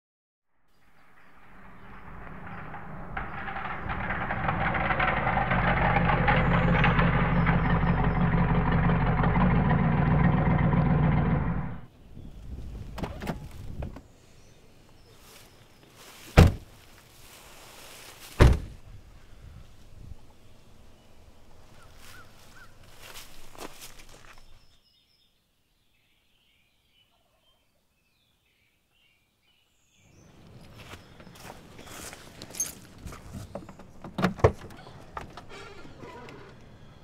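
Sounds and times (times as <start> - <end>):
car engine running: 1.0 - 11.9
car doors slamming: 16.4 - 16.6, 18.4 - 18.7.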